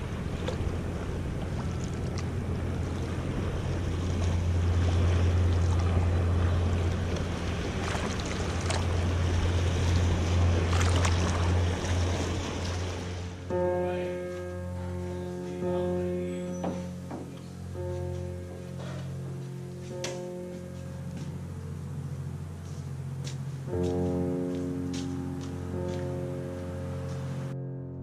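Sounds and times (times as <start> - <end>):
waves breaking on rocks: 0.0 - 13.5
sea water lapping: 0.0 - 27.5
steady low rumble: 0.0 - 28.0.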